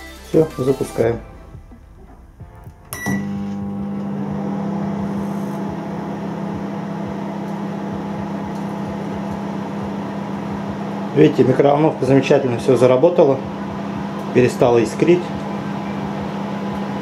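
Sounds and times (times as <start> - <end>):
microwave oven humming: 1.6 - 17.0
microwave beep: 2.8 - 5.1.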